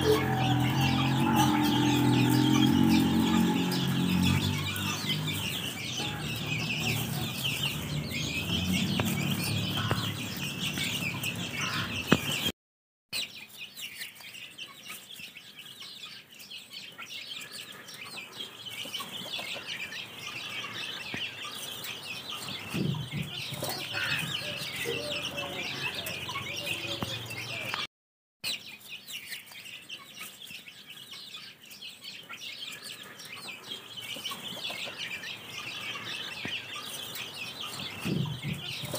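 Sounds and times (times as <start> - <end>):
hen clucks: 0.0 - 12.4
chicks peeping: 0.0 - 12.5, 13.2 - 38.9.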